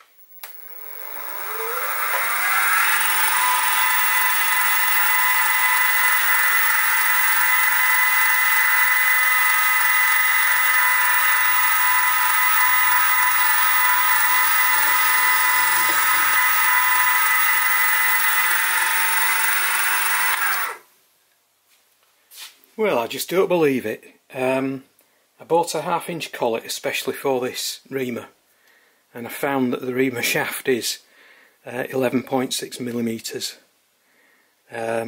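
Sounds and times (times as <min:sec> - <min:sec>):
mill spindle whine: 0:00.0 - 0:20.8.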